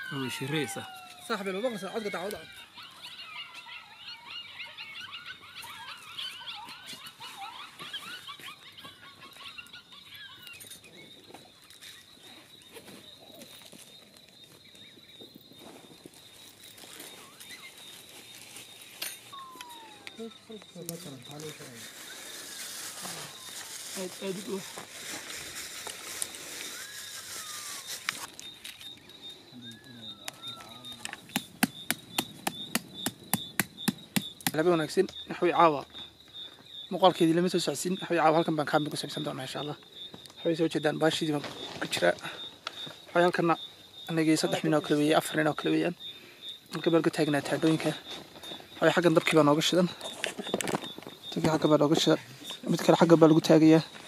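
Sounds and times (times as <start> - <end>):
jackals yipping and howling: 0.0 - 34.0
steady high-pitched tone: 19.3 - 21.5.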